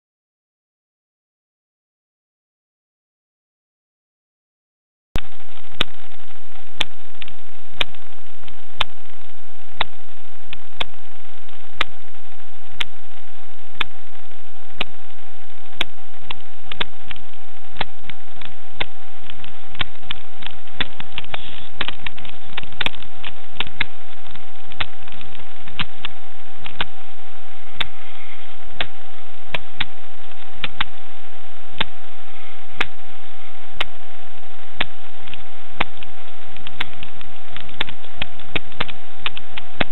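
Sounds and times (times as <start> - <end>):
microphone hiss and whine: 5.2 - 39.9
sharp clicks and knocks: 15.7 - 27.0, 28.8 - 31.0, 34.8 - 39.9.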